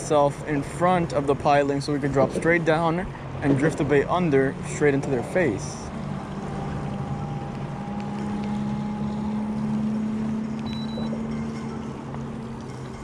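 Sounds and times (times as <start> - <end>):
electric trolling motor hum: 5.9 - 13.0.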